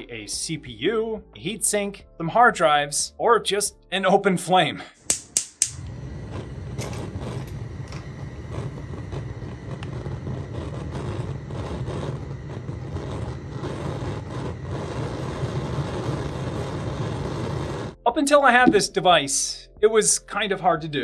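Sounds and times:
gas burner rumble: 5.6 - 18.0.

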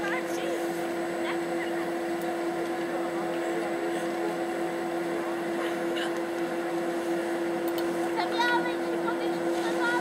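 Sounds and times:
steady mechanical hum: 0.0 - 10.0.

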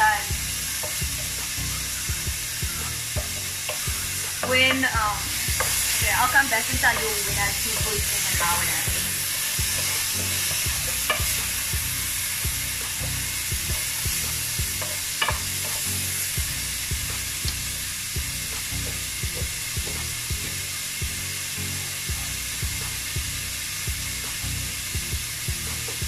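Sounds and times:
chicken sizzling in frying pan: 0.0 - 26.0
wooden spoon scraping a pan: 2.8 - 15.9.

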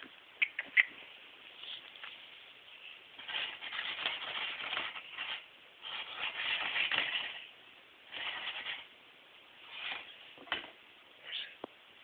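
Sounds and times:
cat scratching cardboard box: 3.2 - 7.5, 8.1 - 8.9, 9.6 - 10.7.

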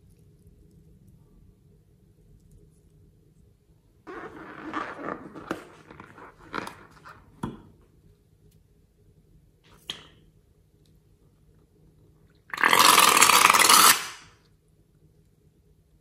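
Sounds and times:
liquid sputtering from balloon neck: 12.6 - 14.2.

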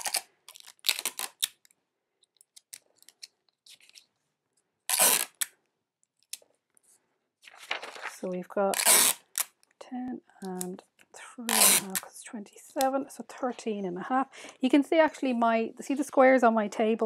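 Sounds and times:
sticky tape pulled and torn: 0.0 - 4.0, 4.9 - 6.4, 8.7 - 9.7, 11.5 - 12.1
paper handling: 2.3 - 4.2, 6.2 - 9.7
paper rustle: 2.4 - 4.2, 6.8 - 9.2.

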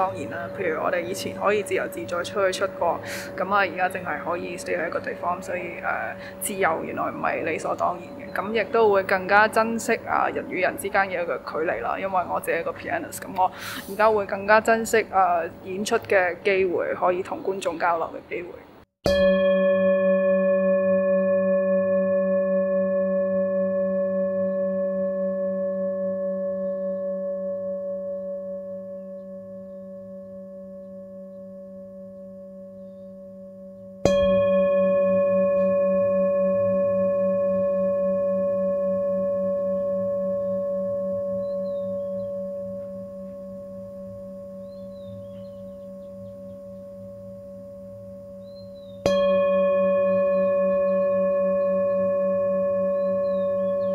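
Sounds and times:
singing bowl ringing: 0.0 - 13.3, 19.1 - 53.9
singing bowl struck: 19.1 - 53.9.

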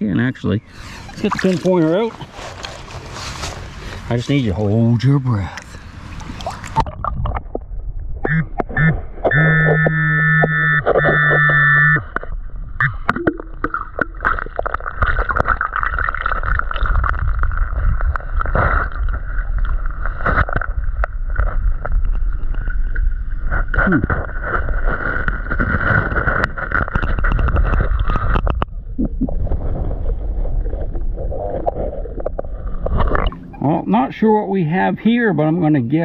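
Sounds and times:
hand digging through gravel underwater: 1.2 - 4.1, 13.2 - 33.4.

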